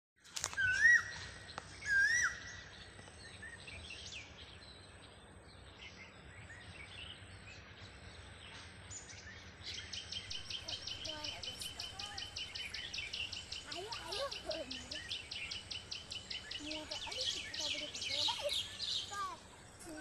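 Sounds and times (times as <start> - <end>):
soft bird chirps: 0.3 - 20.0
loud whistled bird calls: 0.5 - 4.4.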